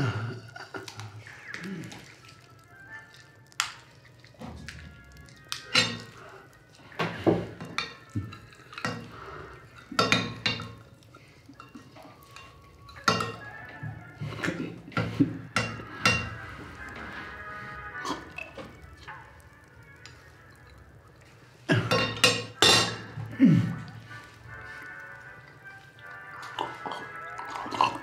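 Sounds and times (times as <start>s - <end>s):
faint music: 0.0s - 28.0s
spoon clinking against plate: 9.8s - 10.8s, 11.6s - 13.4s, 21.9s - 23.2s.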